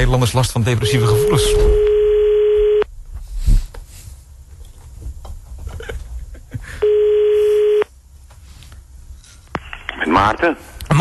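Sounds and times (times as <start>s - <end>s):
telephone ringback tone: 0.8s - 2.9s, 6.8s - 7.9s
faint phone line noise: 6.8s - 7.9s.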